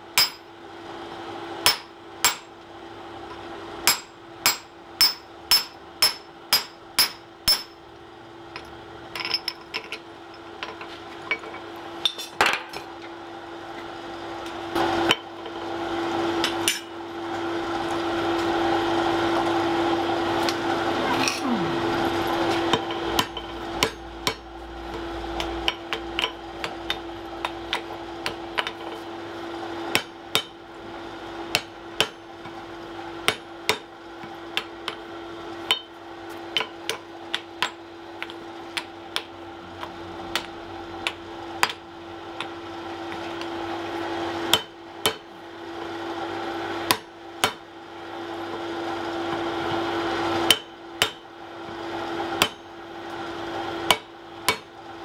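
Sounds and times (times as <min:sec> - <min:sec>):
hammer striking hot iron on anvil: 0:00.1 - 0:00.5, 0:01.6 - 0:02.5, 0:03.8 - 0:07.8, 0:22.7 - 0:29.0, 0:29.9 - 0:30.6, 0:31.5 - 0:32.6, 0:33.2 - 0:35.0, 0:35.6 - 0:35.9, 0:36.6 - 0:39.3, 0:40.3 - 0:43.5, 0:44.5 - 0:45.3, 0:46.9 - 0:47.7, 0:50.4 - 0:51.3, 0:52.4 - 0:52.7, 0:53.8 - 0:54.8
steady hum: 0:19.9 - 0:28.7.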